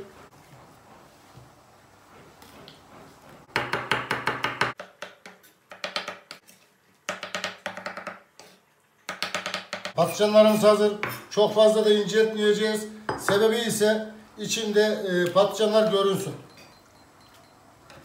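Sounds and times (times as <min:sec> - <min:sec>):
knife chopping on wooden board: 0:03.5 - 0:06.4.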